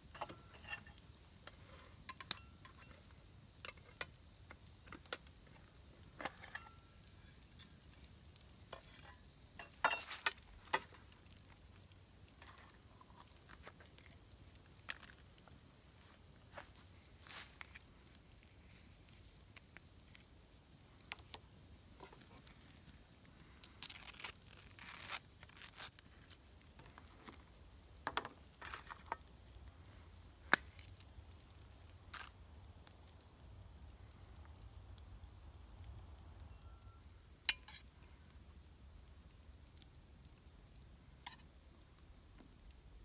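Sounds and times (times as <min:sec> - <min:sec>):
knife scraping and spreading: 0:23.9 - 0:26.0.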